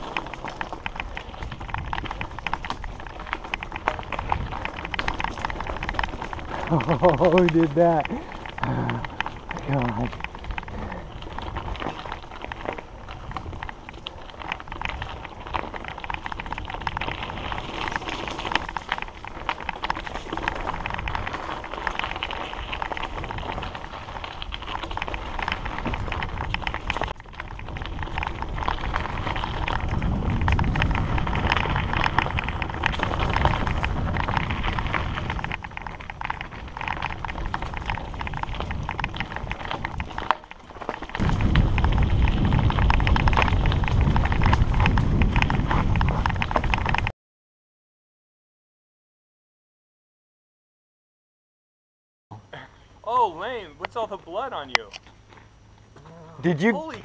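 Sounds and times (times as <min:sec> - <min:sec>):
bike rattling: 0:00.0 - 0:47.1
tyres crackling over leaves: 0:00.0 - 0:47.1, 0:52.9 - 0:57.0
wind buffeting microphone: 0:23.0 - 0:40.2, 0:41.2 - 0:47.1.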